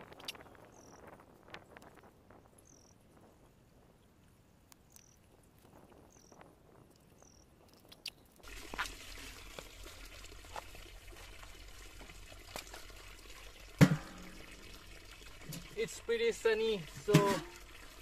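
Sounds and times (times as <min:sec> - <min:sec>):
water trickling into a puddle: 0:04.8 - 0:18.0.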